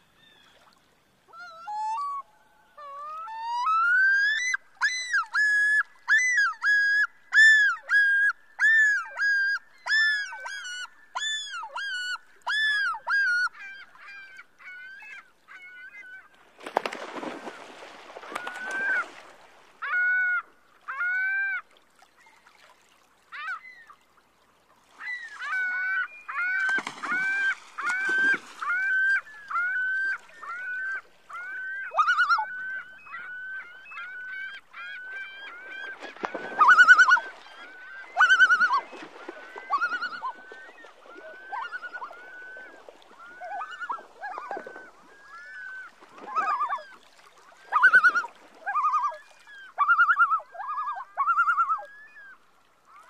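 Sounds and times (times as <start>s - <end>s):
loon calling: 25.0s - 47.0s, 47.7s - 52.1s.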